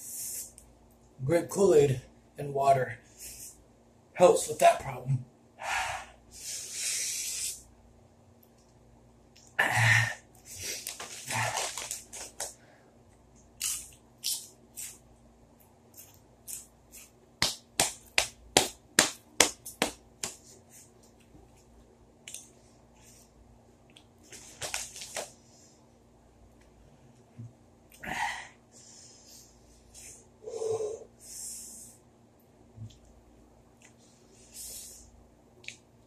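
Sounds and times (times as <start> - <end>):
chips crunching: 10.7 - 12.5, 13.6 - 15.0.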